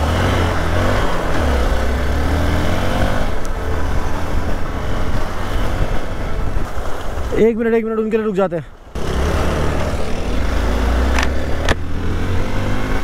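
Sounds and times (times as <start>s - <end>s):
motorcycle engine revving: 0.0s - 6.5s, 9.0s - 13.0s
steady rushing noise: 0.0s - 8.3s.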